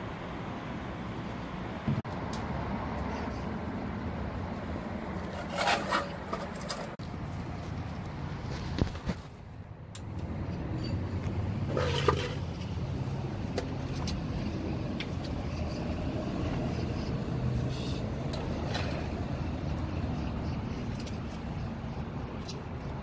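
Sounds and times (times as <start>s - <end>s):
low engine hum: 6.2s - 23.0s.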